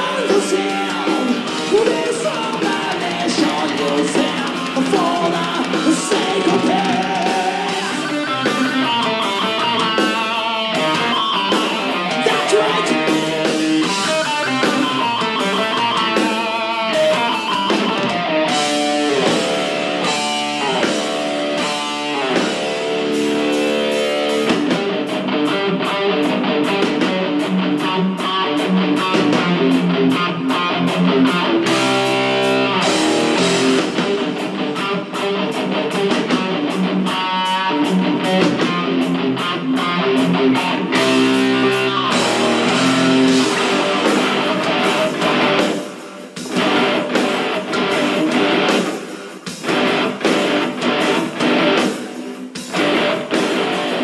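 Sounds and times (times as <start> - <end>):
distorted electric guitar lead: 0.0 - 54.0
driving drums: 0.0 - 54.0.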